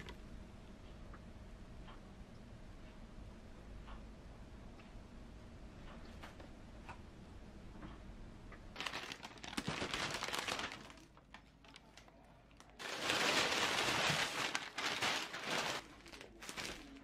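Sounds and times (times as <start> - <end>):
plastic bags crinkling: 8.8 - 17.0.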